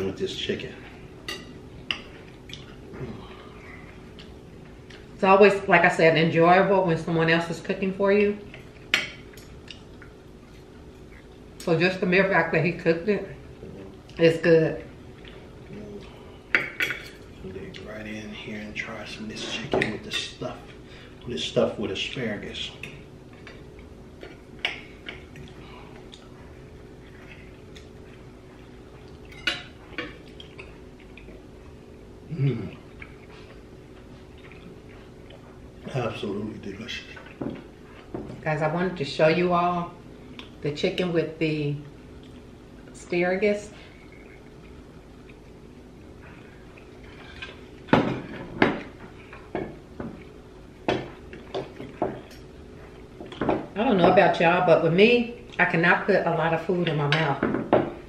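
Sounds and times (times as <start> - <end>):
cutlery clinking on plates: 16.5 - 17.2.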